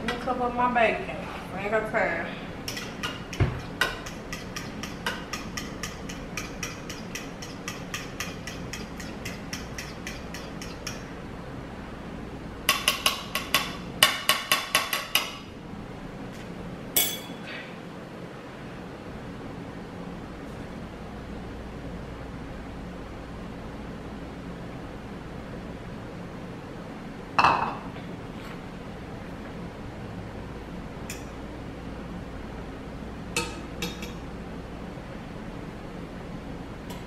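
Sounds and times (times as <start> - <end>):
fork beating eggs in bowl: 2.6 - 11.1, 12.7 - 15.4.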